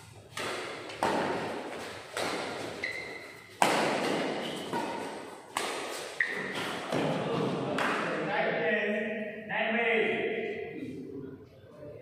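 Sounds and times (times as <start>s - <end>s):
rackets hitting shuttlecock: 0.0s - 8.2s.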